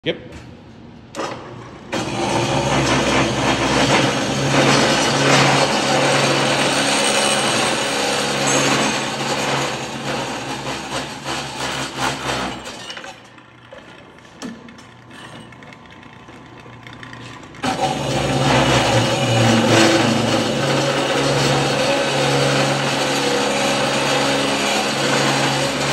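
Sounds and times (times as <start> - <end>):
cold saw cutting steel tube: 2.0 - 13.4, 17.6 - 25.9.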